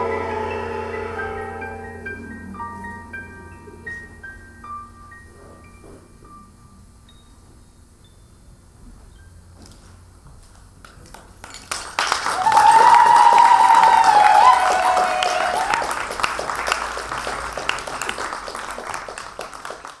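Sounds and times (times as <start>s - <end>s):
crowd cheering: 0.0s - 2.4s, 11.7s - 20.0s
audience applause: 11.1s - 20.0s.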